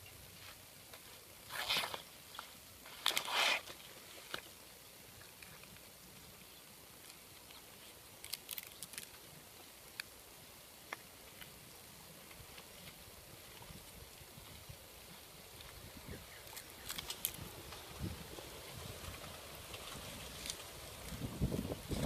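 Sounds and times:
banana leaves rustling: 0:00.3 - 0:04.6, 0:07.3 - 0:09.6, 0:12.2 - 0:22.0.

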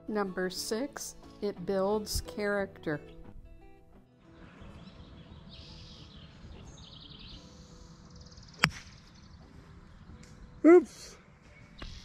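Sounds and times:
outdoor background noise: 0:04.0 - 0:12.0
golf club striking ball: 0:08.5 - 0:09.1.

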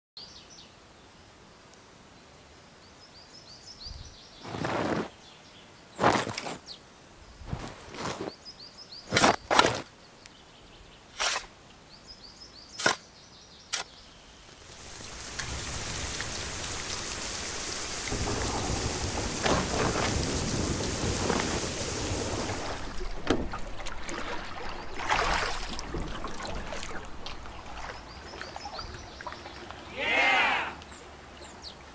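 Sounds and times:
faint outdoor background: 0:00.2 - 0:31.9
small birds chirping: 0:02.7 - 0:19.4, 0:22.8 - 0:31.9
heavy rain: 0:14.5 - 0:28.8
loud burst of rustling: 0:14.7 - 0:27.8
thunder rumbling: 0:14.8 - 0:28.1.

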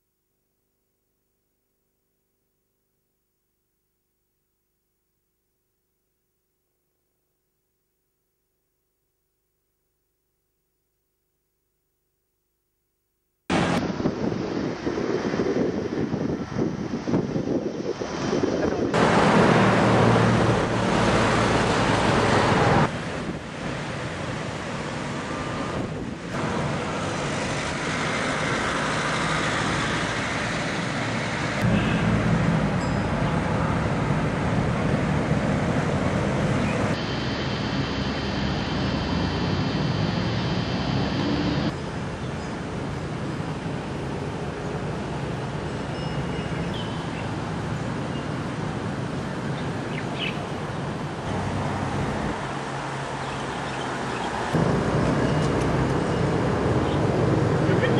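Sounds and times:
outdoor noise: 0:00.0 - 0:57.9
traffic on a road bridge: 0:13.5 - 0:57.9
river water flowing: 0:19.0 - 0:57.7
low engine-like hum: 0:24.0 - 0:47.0
bird chirps: 0:45.9 - 0:47.3.

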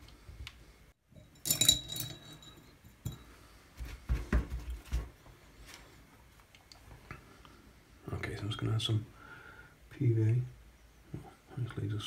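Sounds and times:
clink of small hard objects: 0:01.2 - 0:03.2.

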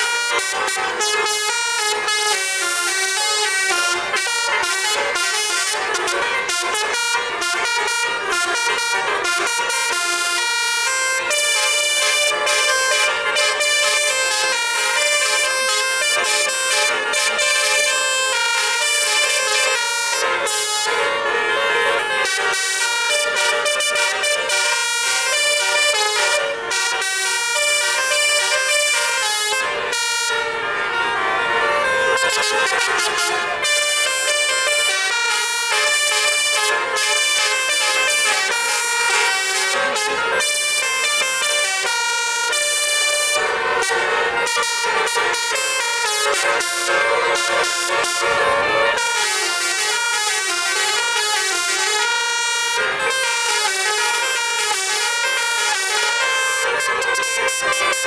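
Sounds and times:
bus air horn playing a tune: 0:00.0 - 0:58.0.

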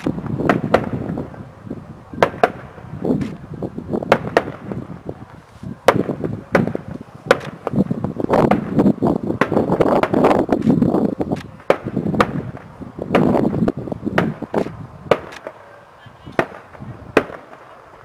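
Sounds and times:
firework shells bursting: 0:00.0 - 0:01.4, 0:02.2 - 0:15.7, 0:16.3 - 0:18.0.

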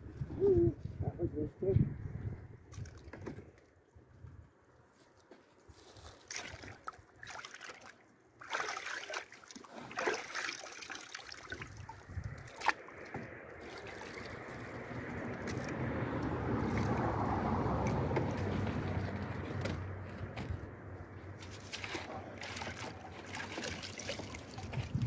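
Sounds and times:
water splashing in a plastic tub: 0:02.6 - 0:03.8, 0:05.8 - 0:20.0, 0:21.4 - 0:25.0.

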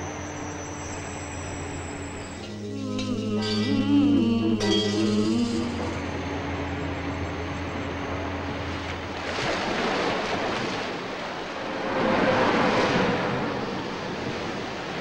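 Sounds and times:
waves breaking and washing: 0:05.2 - 0:15.0.

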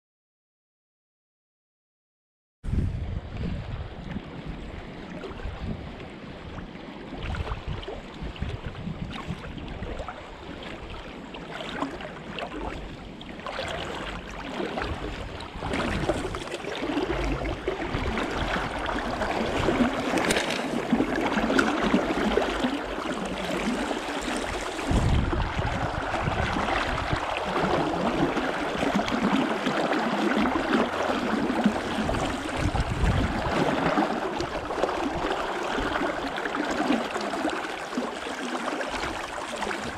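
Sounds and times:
wind buffeting microphone: 0:02.6 - 0:10.9, 0:14.8 - 0:29.4, 0:30.4 - 0:36.2, 0:39.2 - 0:39.9
river water rushing: 0:15.8 - 0:25.2.

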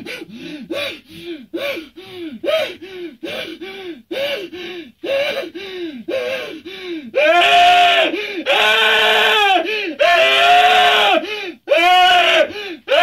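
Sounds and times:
man gasping cries: 0:00.0 - 0:07.3, 0:09.6 - 0:10.1, 0:11.1 - 0:11.7, 0:12.4 - 0:13.0
man screaming: 0:07.2 - 0:13.0.

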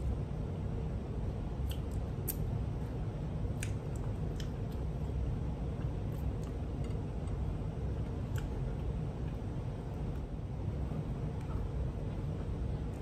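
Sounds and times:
low background rumble: 0:00.0 - 0:13.0
person chewing food: 0:03.4 - 0:09.4.

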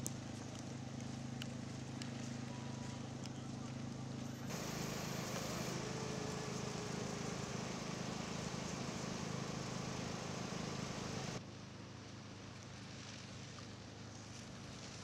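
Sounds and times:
distant street ambience: 0:04.3 - 0:11.4
engine humming: 0:04.3 - 0:11.4.

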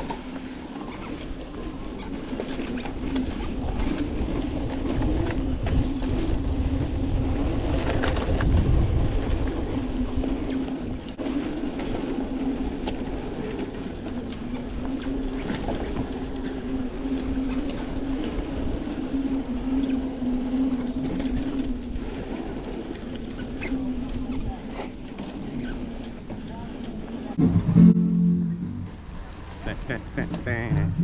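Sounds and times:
bike clicks and rattles: 0:00.0 - 0:27.0
bike tyre rumble: 0:00.0 - 0:31.0
wind on microphone: 0:03.0 - 0:11.5
steady buzz: 0:27.4 - 0:31.0.

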